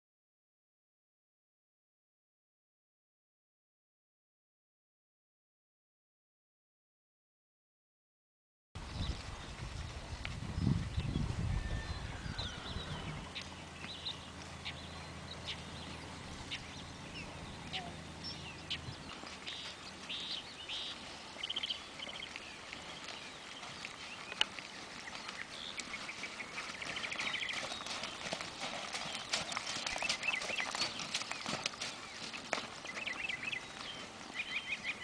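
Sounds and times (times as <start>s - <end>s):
horse hoofbeats on dirt: 8.8s - 35.0s
birds chirping and trilling: 10.6s - 35.0s.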